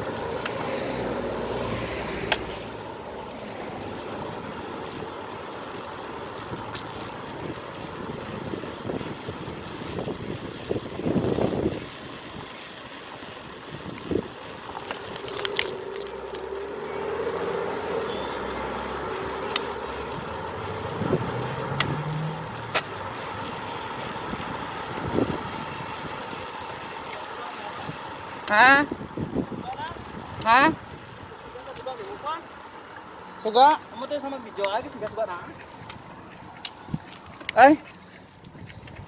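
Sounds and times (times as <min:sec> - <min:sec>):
motor vehicle hum: 0:00.0 - 0:39.0
wind and road noise: 0:00.0 - 0:39.0
bike clicks and knocks: 0:02.2 - 0:02.5, 0:19.4 - 0:19.8.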